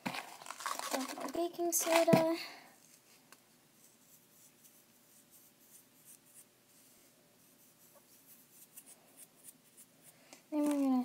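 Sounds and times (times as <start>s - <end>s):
fingers rubbing powder rustles: 2.8s - 11.0s.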